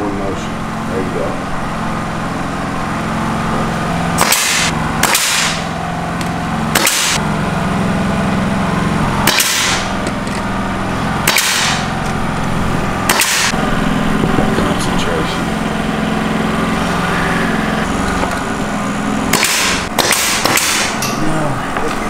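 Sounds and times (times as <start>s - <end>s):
motor hum: 0.0s - 22.0s
nail gun firing: 4.2s - 7.2s, 9.2s - 10.4s, 11.2s - 12.0s, 13.0s - 13.6s, 19.3s - 21.2s.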